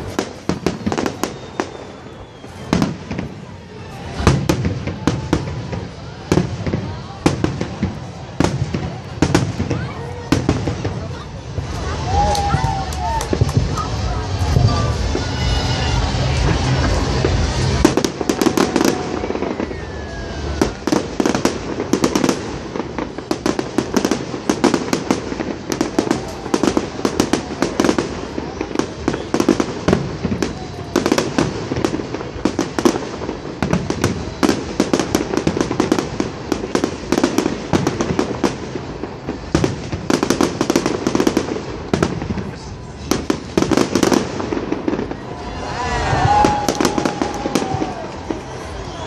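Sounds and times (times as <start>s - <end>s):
fireworks bangs and crackles: 0.0s - 49.0s.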